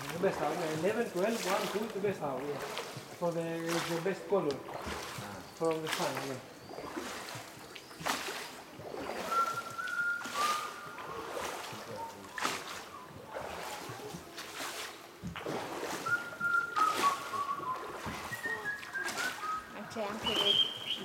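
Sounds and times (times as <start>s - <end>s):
water splashing in a cave: 0.0s - 21.0s
short high whistled tones: 9.2s - 11.1s, 16.0s - 21.0s.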